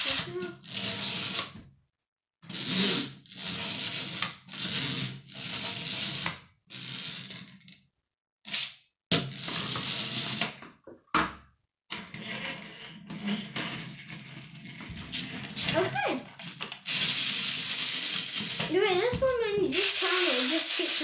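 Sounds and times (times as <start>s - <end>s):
wind-up toy clockwork whirring: 0.0s - 1.5s, 2.5s - 7.5s, 8.5s - 10.4s, 15.1s - 21.0s.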